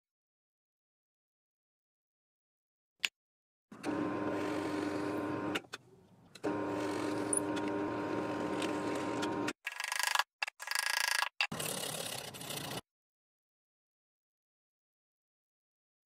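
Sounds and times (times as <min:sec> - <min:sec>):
electric drill boring into wood: 0:03.8 - 0:05.6, 0:06.4 - 0:10.2.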